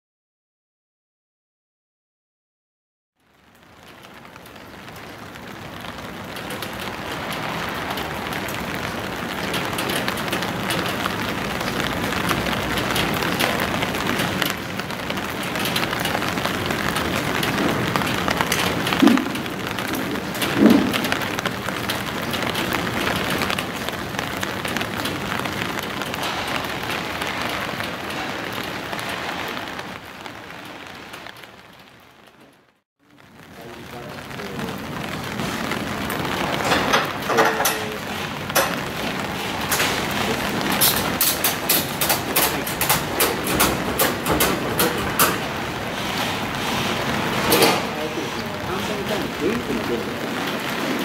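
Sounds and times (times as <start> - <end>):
rain falling on wet street: 3.2 - 51.0.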